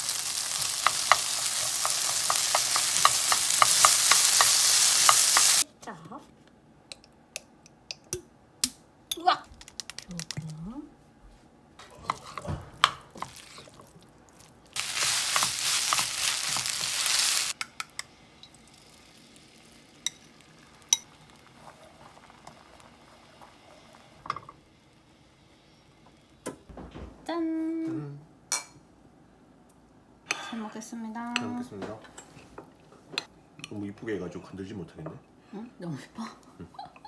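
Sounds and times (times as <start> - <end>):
loud sizzling in a pan: 0.0 - 5.6, 14.6 - 26.4
wooden spoon scraping a pan: 0.4 - 5.6, 11.9 - 13.9, 14.8 - 17.5.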